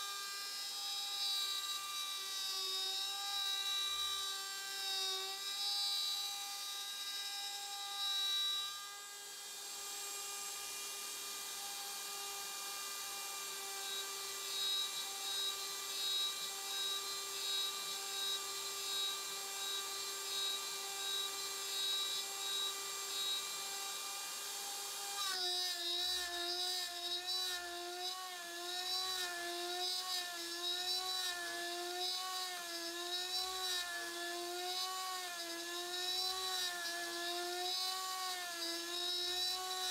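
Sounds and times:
router spindle high-pitched whine: 0.0 - 39.9.

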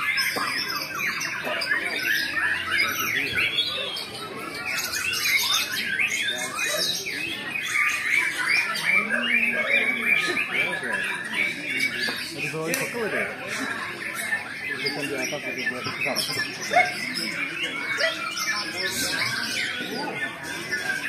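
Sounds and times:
harsh bird chattering: 0.0 - 21.0
songbirds singing: 0.0 - 21.0.

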